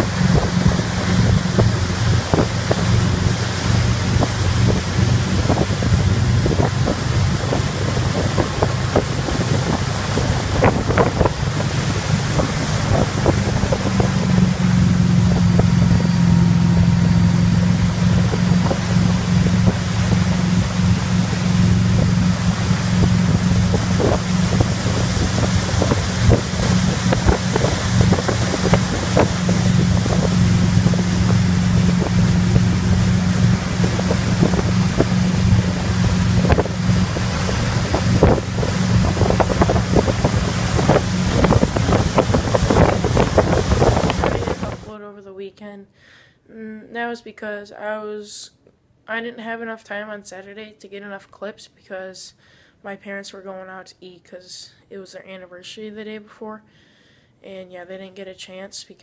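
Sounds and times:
churning wake rushing: 0.0 - 44.9
motorboat engine running: 0.0 - 44.9
wind buffeting microphone: 0.0 - 44.9.

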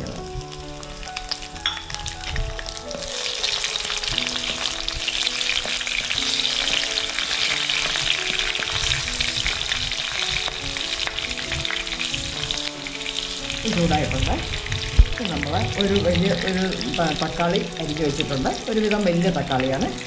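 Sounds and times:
spices sizzling and crackling in oil: 0.0 - 20.0
spatula stirring: 1.2 - 17.0.

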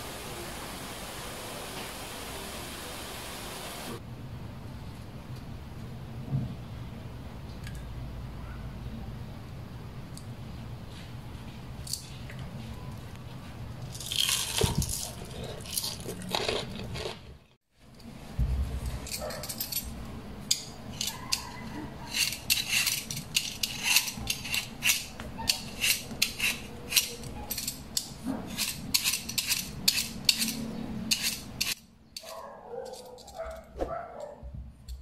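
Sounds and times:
peeler scraping potato: 21.0 - 27.5, 28.4 - 32.4.

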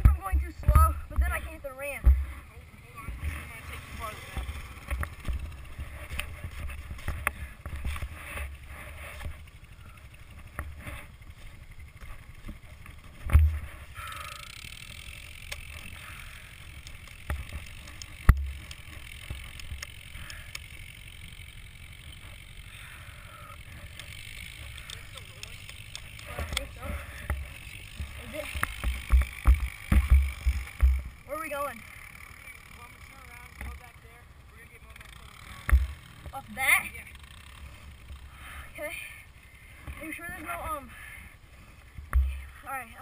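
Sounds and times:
small clicks: 12.8 - 20.9, 23.8 - 31.0
sharp knocks: 28.7 - 31.1.

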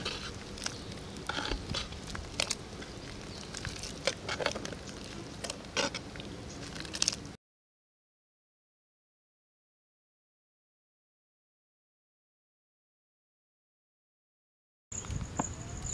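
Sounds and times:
metal ladle scraping clay pot: 0.0 - 2.6, 3.8 - 4.8, 5.4 - 6.2.

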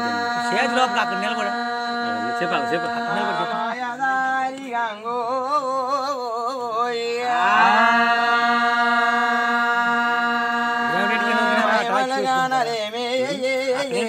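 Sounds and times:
steady musical drone: 0.0 - 3.8.

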